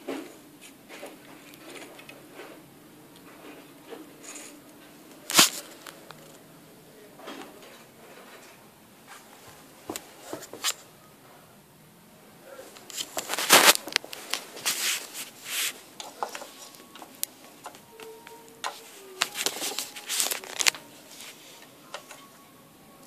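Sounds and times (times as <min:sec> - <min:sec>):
scraping and rustling: 0:00.0 - 0:06.4, 0:12.5 - 0:22.3.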